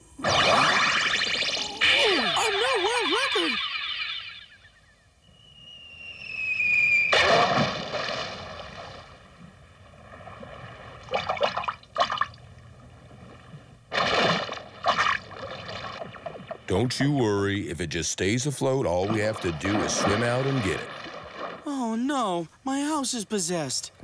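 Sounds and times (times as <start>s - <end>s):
falling whistle: 0.2s - 7.5s
big water splash: 6.9s - 12.4s, 13.9s - 16.8s, 18.8s - 21.8s
shorter splashing sounds: 13.9s - 16.7s, 18.8s - 21.7s.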